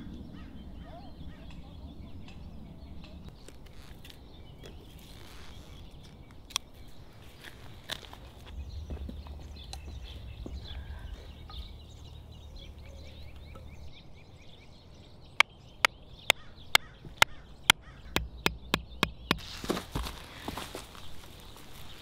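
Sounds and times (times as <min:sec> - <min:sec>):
birds chirping faintly: 0:00.0 - 0:22.0
hammer driving wooden stake: 0:18.1 - 0:20.1.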